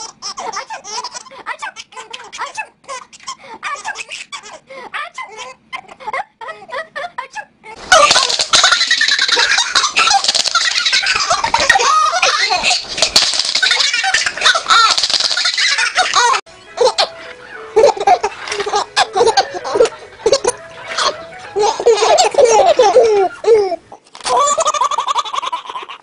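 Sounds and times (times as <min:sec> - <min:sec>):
baby laughing and babbling: 0:00.0 - 0:08.8, 0:17.8 - 0:25.3
baby laughing loudly: 0:00.0 - 0:26.0.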